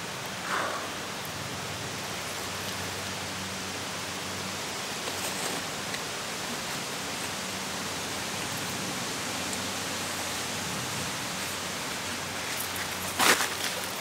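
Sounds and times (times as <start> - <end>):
outdoor ambience hiss: 0.0 - 14.0.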